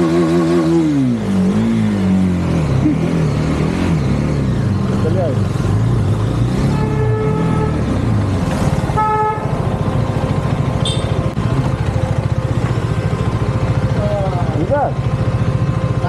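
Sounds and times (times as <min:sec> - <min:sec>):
vehicle horn honking: 0:06.6 - 0:08.0, 0:08.9 - 0:09.6, 0:10.8 - 0:11.3
motorcycle engine idling: 0:08.9 - 0:16.0.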